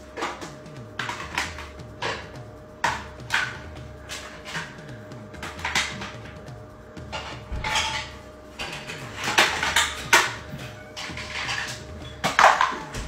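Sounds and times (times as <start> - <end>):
plastic dishes clattering: 7.1 - 13.0.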